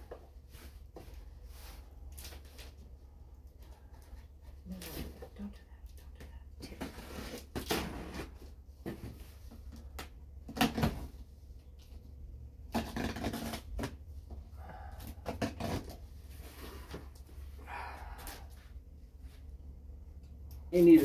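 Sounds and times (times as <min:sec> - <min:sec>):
cardboard rubbing and scraping: 0:12.7 - 0:14.0.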